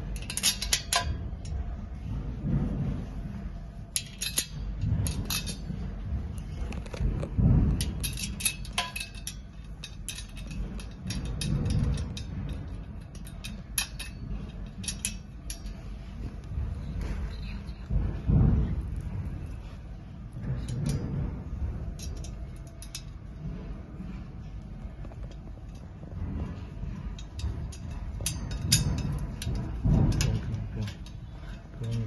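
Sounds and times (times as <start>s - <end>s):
low rumbling handling noise: 0.0s - 32.0s
metallic clicks of screws and bars: 0.2s - 1.6s, 3.9s - 5.6s, 6.7s - 18.0s, 27.2s - 32.0s.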